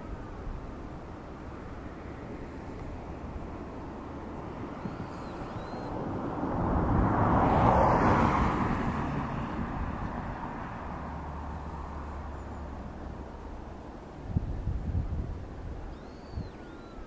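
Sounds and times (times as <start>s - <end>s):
vehicle passing by: 1.8s - 14.4s.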